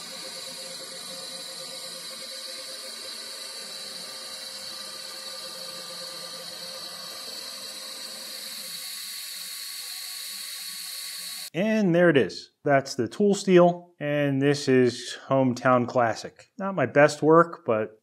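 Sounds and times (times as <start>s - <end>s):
welding arc hissing: 0.0s - 11.5s.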